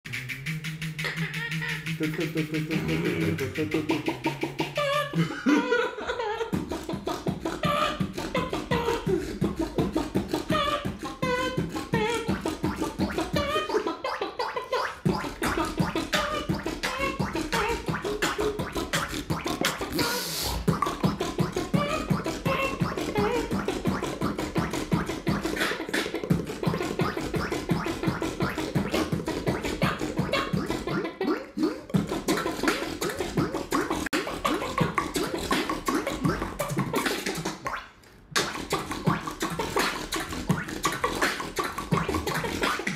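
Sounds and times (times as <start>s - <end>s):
person beatboxing: 0.0s - 42.9s.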